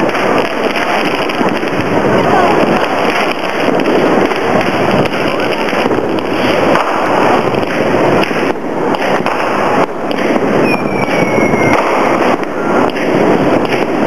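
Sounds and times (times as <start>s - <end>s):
fireworks bangs and crackling: 0.0s - 14.0s
falling firework whistle: 8.2s - 14.0s.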